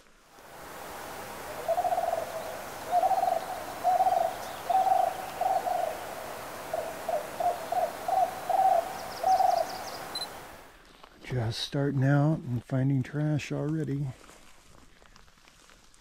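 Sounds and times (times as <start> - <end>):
background hiss: 0.0 - 16.0
low rough hooting calls: 0.5 - 10.7.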